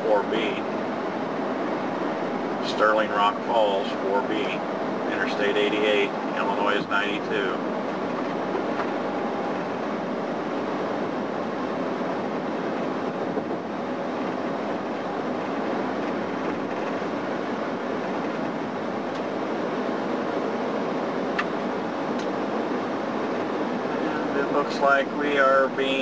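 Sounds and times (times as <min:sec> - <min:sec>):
vehicle cabin road noise: 0:00.0 - 0:26.0.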